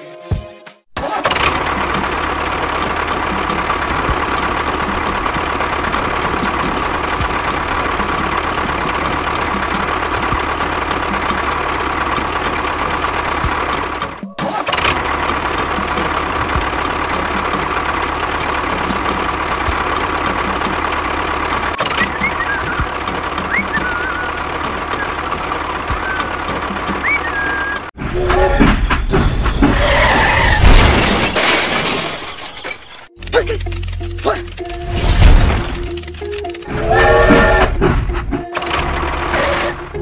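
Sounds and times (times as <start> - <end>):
tractor engine idling with knock: 1.2 - 27.6.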